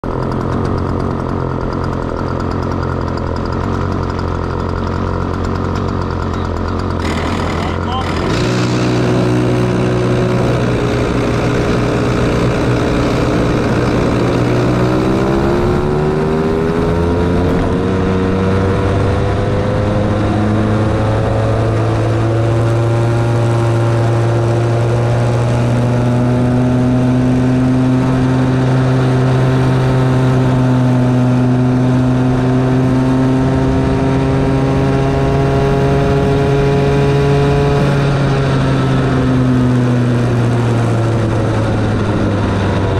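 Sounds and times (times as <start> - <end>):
go-kart engine revving: 0.0 - 42.9.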